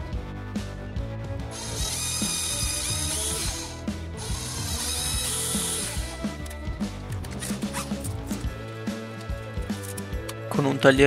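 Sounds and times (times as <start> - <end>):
cordless drill whining: 1.5 - 8.1.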